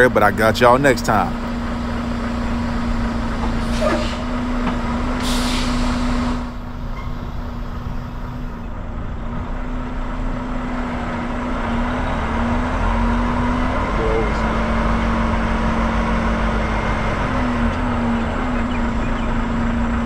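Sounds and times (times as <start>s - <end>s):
diesel truck engine idling: 0.0s - 20.0s
air brakes hissing: 3.6s - 4.4s, 5.1s - 7.6s.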